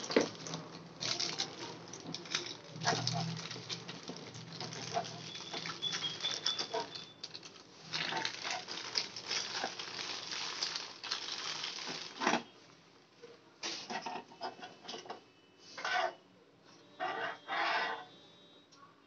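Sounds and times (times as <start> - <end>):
plastic bag crinkling: 0.0 - 12.5.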